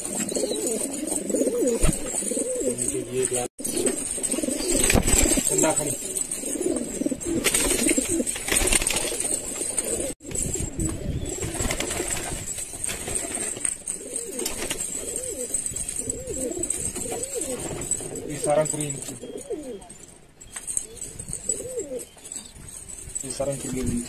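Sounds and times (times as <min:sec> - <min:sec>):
pigeons cooing: 0:00.0 - 0:11.9, 0:13.2 - 0:23.2.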